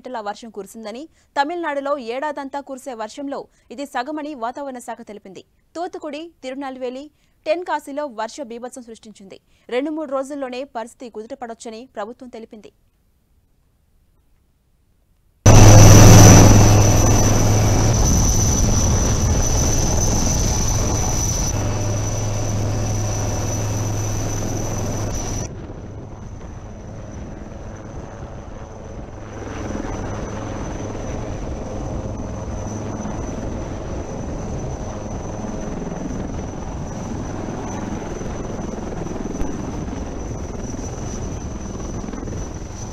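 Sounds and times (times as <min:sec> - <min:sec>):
helicopter rotor and turbine whine: 0:15.4 - 0:42.9.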